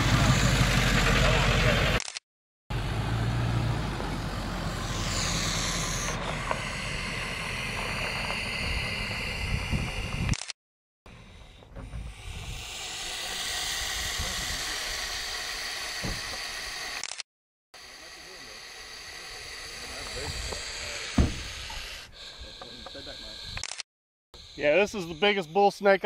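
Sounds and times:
vehicle engine idling: 0:00.0 - 0:02.0, 0:02.7 - 0:10.2, 0:11.1 - 0:17.1, 0:17.8 - 0:23.4
steady noise: 0:04.2 - 0:10.5, 0:12.1 - 0:17.2.

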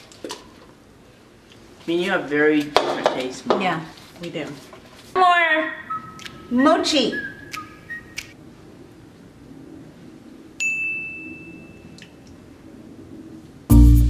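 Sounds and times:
bell-like ding: 0:10.6 - 0:12.0
loud music with heavy bass: 0:13.7 - 0:14.0.

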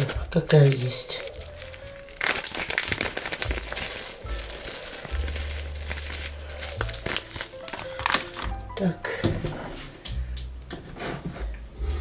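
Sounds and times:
spice packet crinkling: 0:00.0 - 0:08.7.

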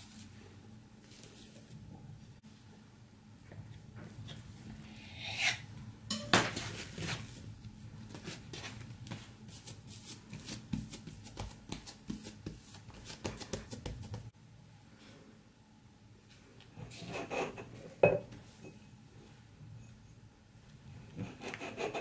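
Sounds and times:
hands slapping dough: 0:09.1 - 0:14.3
knife cutting dough: 0:21.2 - 0:22.0.

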